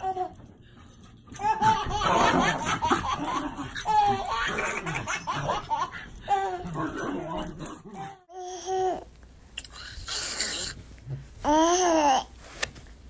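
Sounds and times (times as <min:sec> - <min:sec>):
baby laughing: 0:01.4 - 0:06.8.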